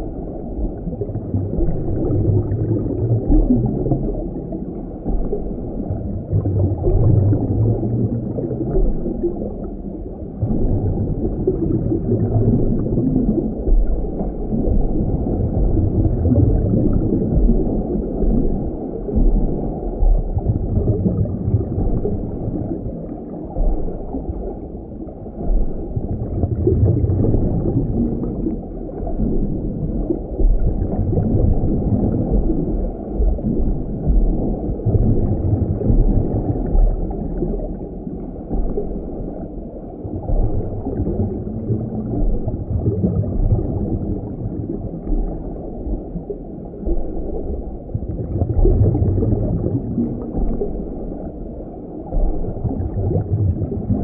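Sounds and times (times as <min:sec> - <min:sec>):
underwater seawater rumble and gurgle: 0:00.0 - 0:54.0.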